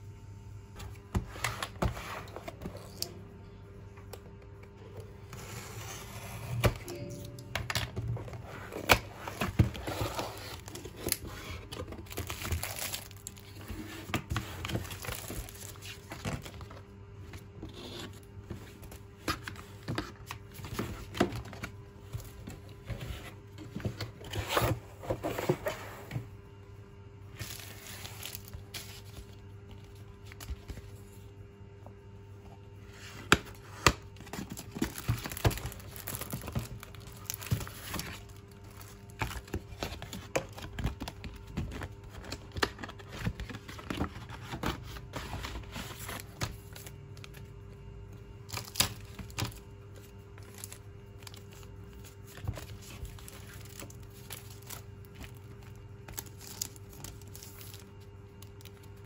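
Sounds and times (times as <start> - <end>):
packaging crinkling and rustling: 7.7 - 16.9, 34.0 - 47.5, 48.5 - 59.0.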